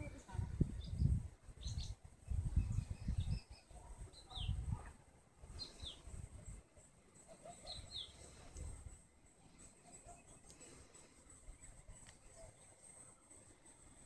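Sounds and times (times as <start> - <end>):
wind buffeting microphone: 0.0 - 6.6
songbirds chirping: 0.0 - 14.0.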